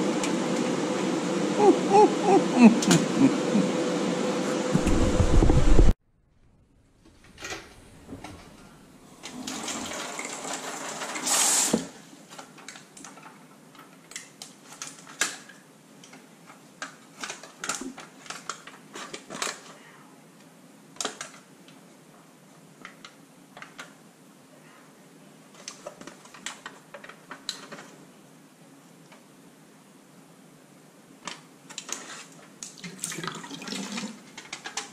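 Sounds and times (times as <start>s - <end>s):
faucet water running: 32.8s - 34.2s.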